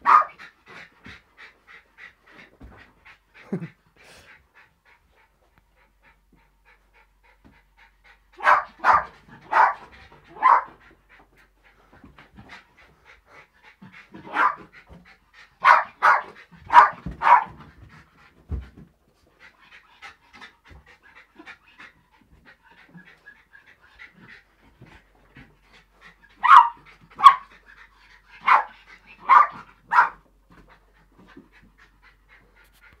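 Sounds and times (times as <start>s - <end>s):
dog panting: 0.0s - 33.0s
small dog yapping: 26.4s - 27.4s.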